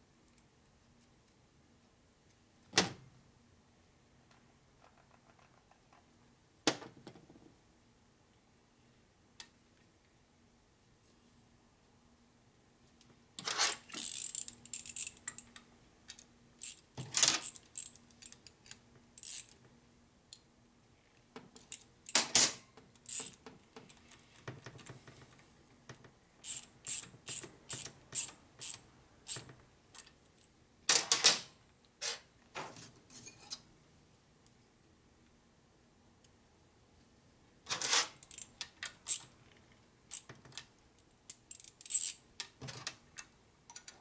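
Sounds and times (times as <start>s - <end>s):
metal tools clinking and clicking: 13.4s - 15.6s, 16.6s - 19.6s, 21.6s - 23.4s, 26.4s - 29.4s, 41.4s - 43.0s.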